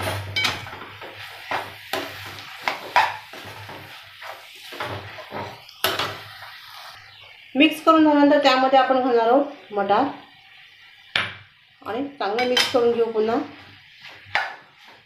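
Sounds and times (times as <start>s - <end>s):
metal spatula scraping a pan: 0.0s - 6.7s.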